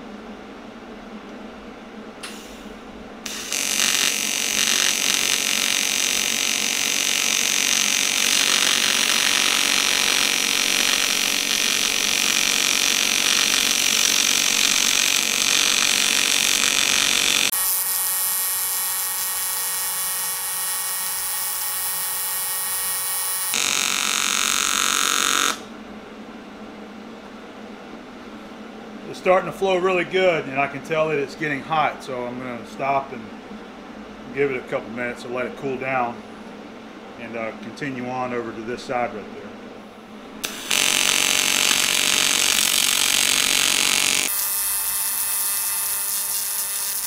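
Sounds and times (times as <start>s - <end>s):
arc welding hissing buzz: 2.2s - 25.8s, 40.3s - 47.0s.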